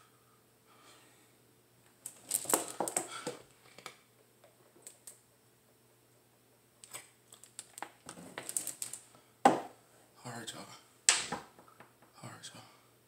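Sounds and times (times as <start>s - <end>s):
plastic bottle crinkling: 2.0s - 3.9s, 6.8s - 9.0s.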